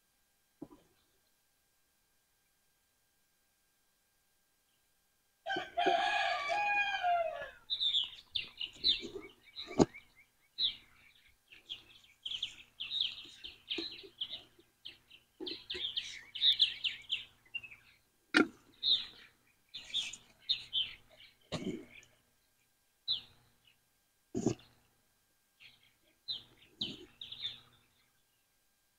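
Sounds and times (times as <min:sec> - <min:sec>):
songbirds chirping: 0:00.0 - 0:28.9
rooster crowing: 0:05.4 - 0:07.7.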